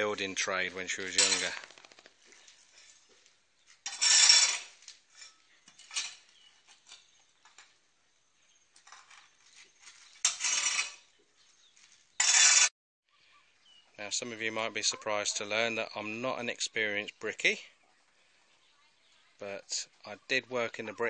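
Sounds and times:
hoe scraping wet mortar on concrete: 0.6 - 1.8, 3.7 - 7.2, 8.8 - 12.7.

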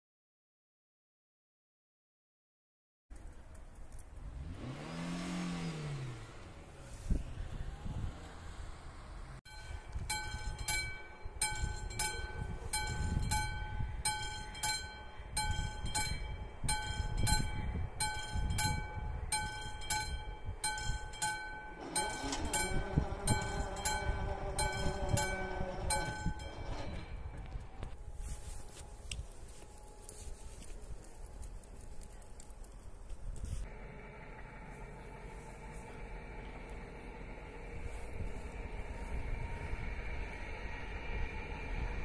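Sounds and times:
barrier drive humming: 4.3 - 28.1, 33.6 - 42.0
mechanical warning bell ringing: 9.5 - 27.3.

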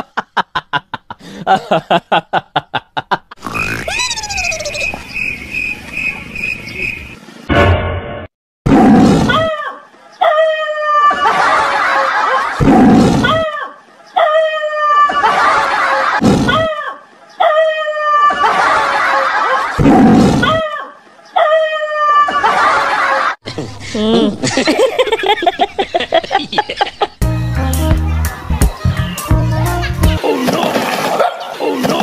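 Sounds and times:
dog barking: 31.1 - 31.6.

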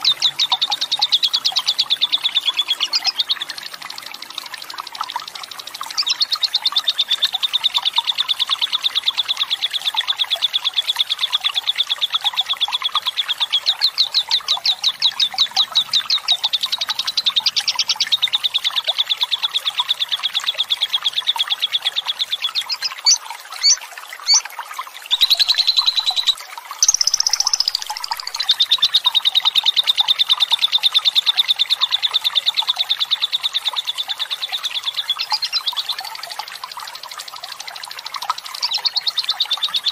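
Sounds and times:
bird trilling chatter: 22.6 - 24.4, 25.1 - 28.4.

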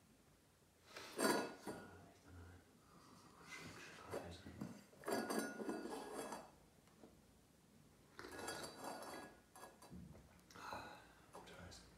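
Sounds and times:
metal dog bowl scraping on wood: 1.1 - 1.8, 4.1 - 6.5, 8.2 - 9.8.

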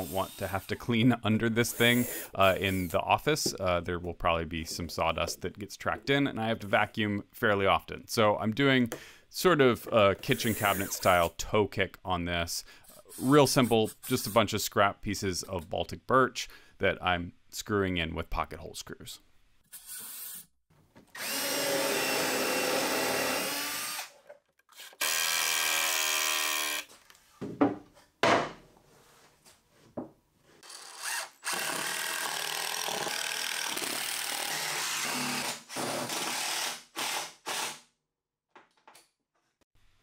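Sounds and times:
power drill driving screws: 21.2 - 26.9, 30.6 - 37.8.

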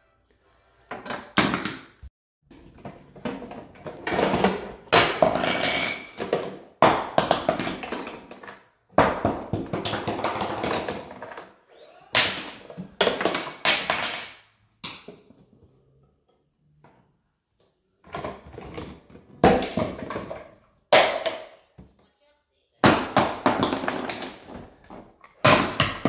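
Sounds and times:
knocking on toy kitchen: 1.0 - 1.9, 2.6 - 11.2, 18.1 - 22.0, 22.8 - 26.0.

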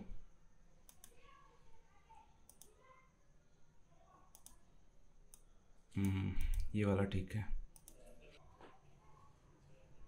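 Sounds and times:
faint computer mouse clicks: 0.8 - 1.2, 2.4 - 2.8, 4.3 - 4.6, 5.3 - 6.7, 7.7 - 8.2.

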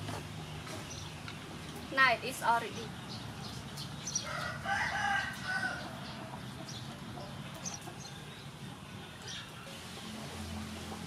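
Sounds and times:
chicken clucking: 4.3 - 11.0.

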